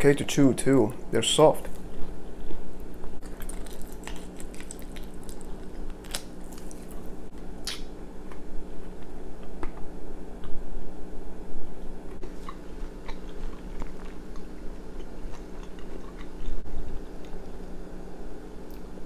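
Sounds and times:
biting and chewing: 1.6s - 10.6s, 12.1s - 17.6s
bones clicking when chewed: 12.2s - 16.6s.

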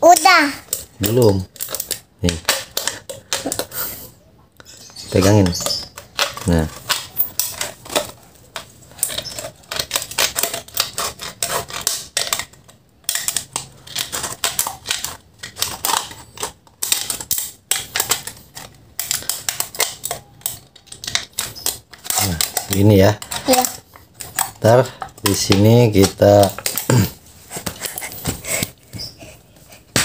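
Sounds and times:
scissors cutting metal can: 9.0s - 24.6s.

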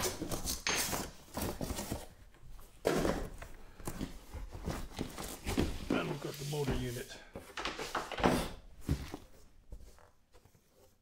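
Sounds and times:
cardboard packaging rustling: 0.0s - 7.0s.

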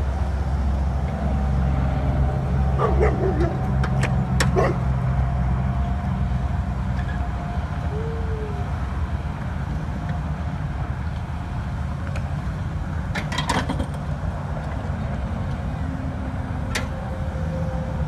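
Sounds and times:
truck engine idling: 0.0s - 6.8s.

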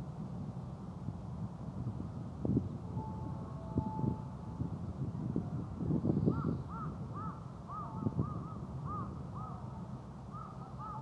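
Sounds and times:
bird calling: 10.3s - 11.0s.

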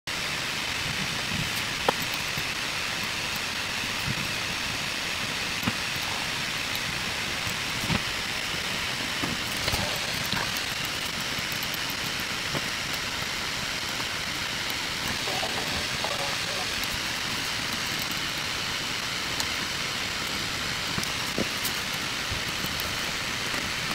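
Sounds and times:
pen scratching on paper: 15.2s - 16.9s.

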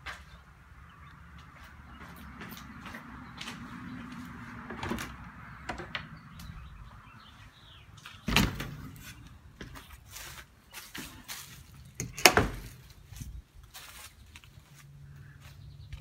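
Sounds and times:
window frame thump: 8.3s - 9.8s.

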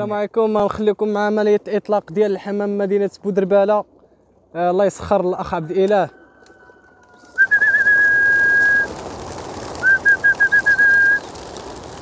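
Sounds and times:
high whistling notes: 6.0s - 8.9s
flock of pigeons wingbeats: 6.3s - 12.0s
short whistled chirps: 7.2s - 8.9s, 9.8s - 11.2s.

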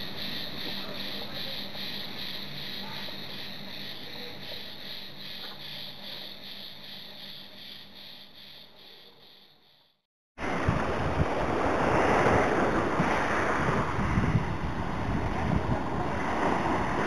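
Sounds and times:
insects chirping: 0.0s - 10.0s.

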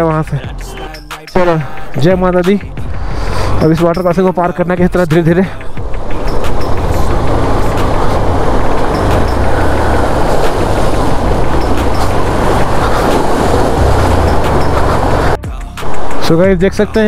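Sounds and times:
water rushing: 5.6s - 16.3s.

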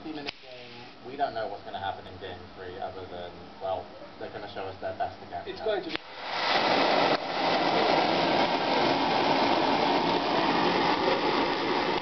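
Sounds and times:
jet-flame lighter hissing: 5.8s - 12.0s.

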